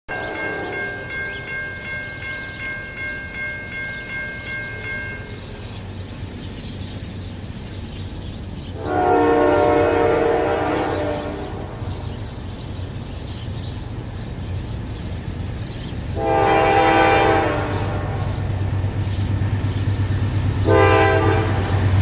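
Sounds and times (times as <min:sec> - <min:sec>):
train air horn chord: 0:00.1 - 0:01.1, 0:08.8 - 0:11.8, 0:16.2 - 0:18.5, 0:20.6 - 0:21.8
crossing warning bell ringing: 0:00.1 - 0:08.2, 0:08.8 - 0:22.0
diesel locomotive rumble: 0:00.1 - 0:22.0.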